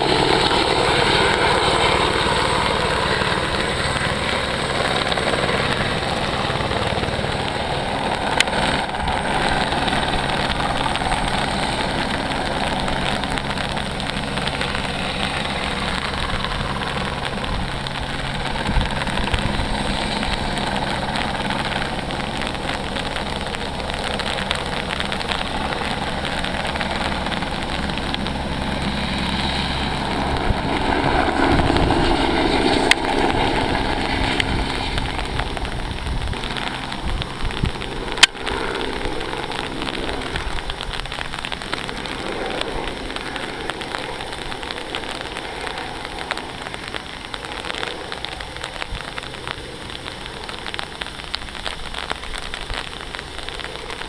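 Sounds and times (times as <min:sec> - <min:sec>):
crackly hiss: 0:00.0 - 0:54.0
helicopter rotor and turbine: 0:00.0 - 0:54.0.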